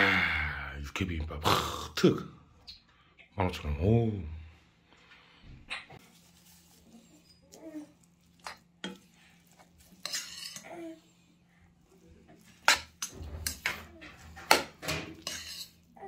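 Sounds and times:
metal spoon scraping metal bowl: 8.6 - 10.7, 12.4 - 16.0.

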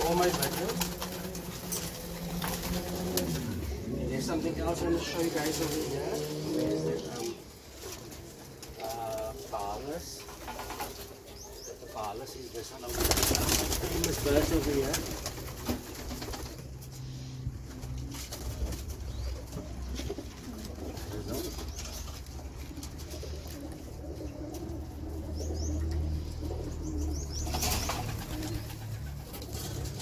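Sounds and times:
wings flapping: 0.0 - 3.9, 10.2 - 11.2, 12.7 - 17.0, 27.4 - 30.0
pigeons cooing: 0.0 - 30.0.

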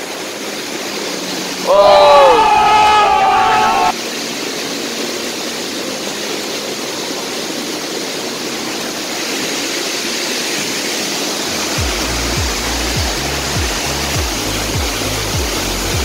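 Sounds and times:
water rushing over rocks: 0.0 - 16.0
thumping background music: 11.8 - 16.0.

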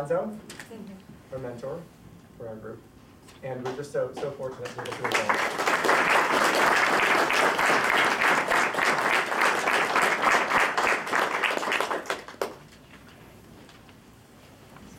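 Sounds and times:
audience applauding: 4.5 - 12.8.

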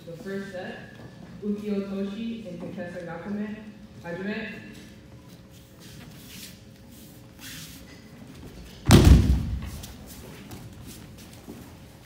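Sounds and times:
body slamming onto mat: 8.8 - 9.9.

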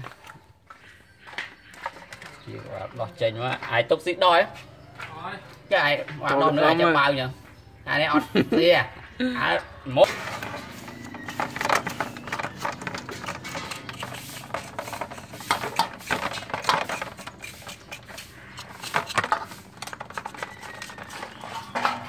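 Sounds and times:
knife cutting meat in metal basin: 10.1 - 22.0.

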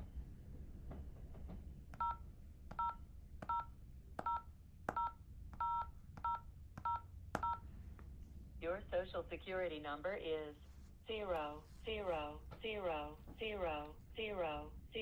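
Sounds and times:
two-tone keypad beep: 2.0 - 2.2, 2.8 - 7.6
phone screen tap: 4.2 - 7.6.

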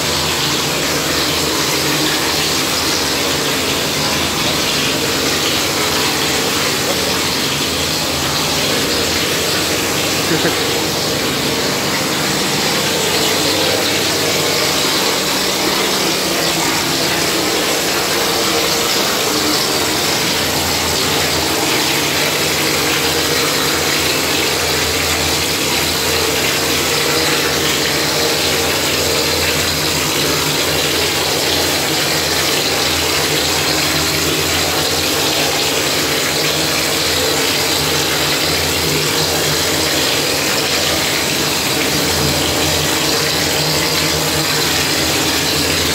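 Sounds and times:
pump and motor hum: 0.0 - 45.9.

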